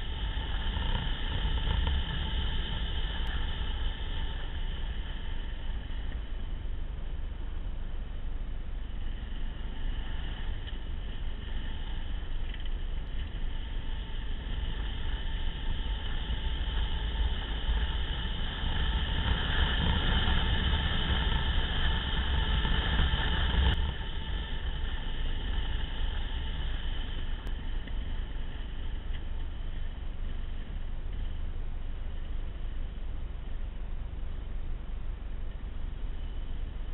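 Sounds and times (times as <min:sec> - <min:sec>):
low wind rumble: 0:00.0 - 0:36.9
off-road vehicle engine running: 0:00.0 - 0:36.9.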